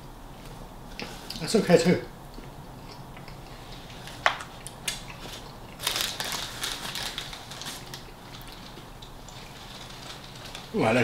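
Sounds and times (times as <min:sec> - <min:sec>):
paper wrapping crinkling: 0:04.9 - 0:11.0.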